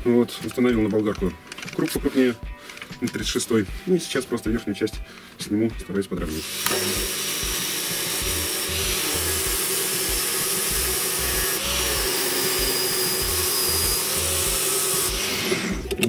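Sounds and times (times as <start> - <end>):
angle grinder sanding: 6.4 - 15.9.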